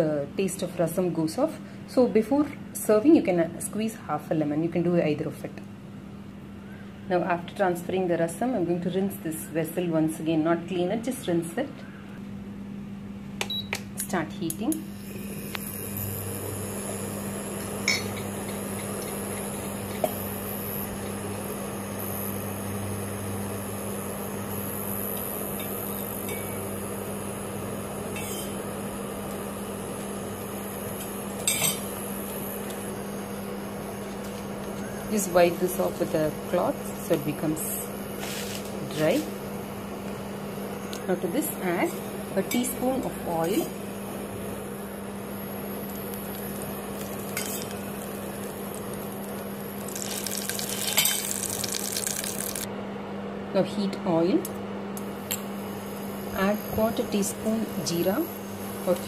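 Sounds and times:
induction cooktop humming: 0:00.0 - 0:59.0
oil crackling and sizzling: 0:15.0 - 0:35.0, 0:41.8 - 0:52.7.

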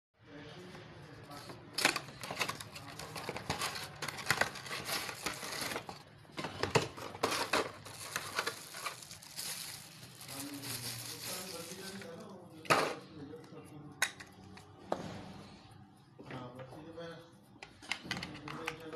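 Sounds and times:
plastic packaging crinkling: 0:02.0 - 0:06.0, 0:06.9 - 0:12.3.

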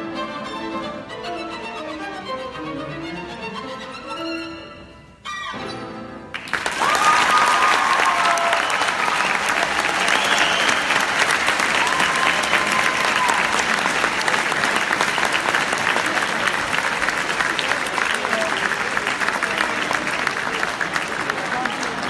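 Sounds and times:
violin and piano chord: 0:00.0 - 0:05.1
audience applause: 0:06.3 - 0:22.0
whistles: 0:08.2 - 0:11.3.

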